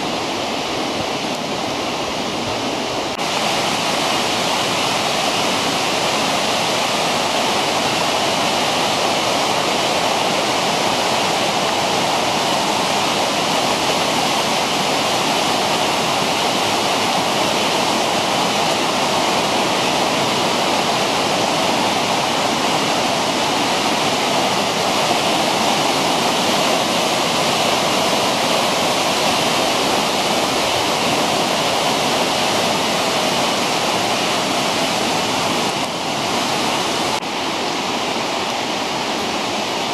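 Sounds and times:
white water rushing over stones: 0:00.0 - 0:39.9.

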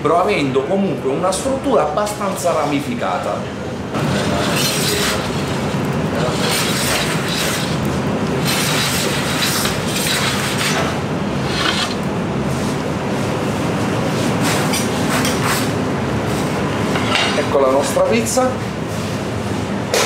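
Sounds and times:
metal peel scraping oven floor: 0:04.0 - 0:12.1.

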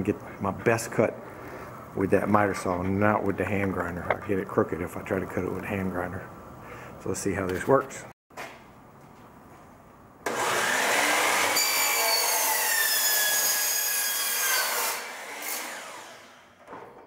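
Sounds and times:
miter saw cutting metal pipe: 0:10.3 - 0:16.5.

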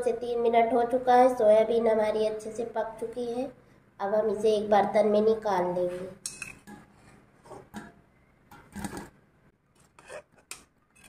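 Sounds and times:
metal ladle clinking on pot: 0:06.2 - 0:06.8.

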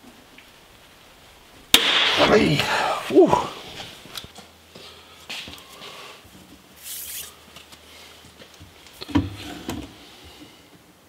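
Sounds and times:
hands scratching plastic film: 0:06.8 - 0:07.7.

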